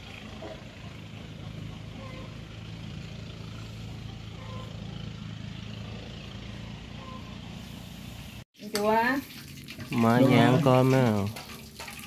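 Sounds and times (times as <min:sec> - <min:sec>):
engine droning: 0:00.0 - 0:08.4.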